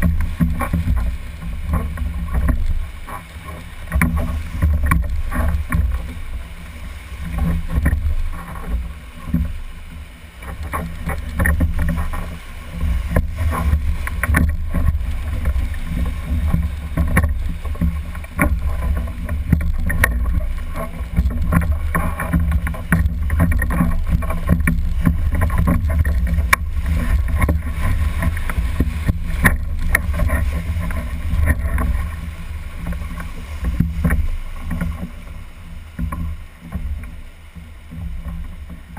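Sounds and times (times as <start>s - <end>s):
whitewater rushing: 0.0s - 38.9s
sharp knocks and clicks: 3.9s - 6.1s, 13.1s - 15.6s, 16.4s - 32.1s.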